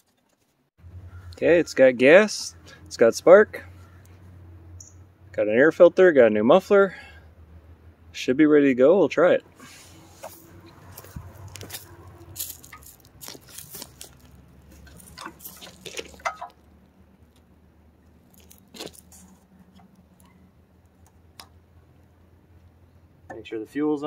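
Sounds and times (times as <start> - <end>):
footsteps crunching on gravel: 10.1 - 16.6, 18.2 - 19.5.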